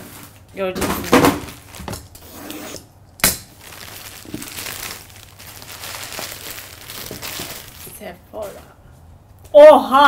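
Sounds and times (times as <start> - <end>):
plastic bag crinkling: 3.4 - 8.7.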